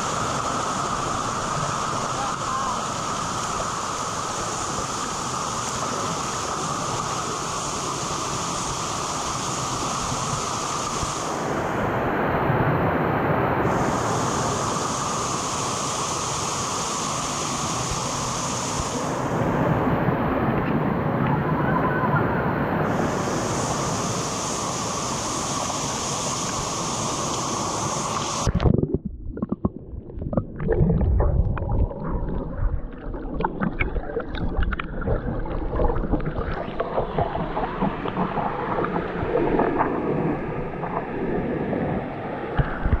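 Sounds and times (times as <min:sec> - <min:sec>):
rushing hiss of open air: 0:00.0 - 0:12.2, 0:13.0 - 0:19.8, 0:22.7 - 0:28.5
water clicks and crackles: 0:28.1 - 0:41.6, 0:42.6 - 0:43.0
muffled underwater rumbling: 0:28.4 - 0:43.0.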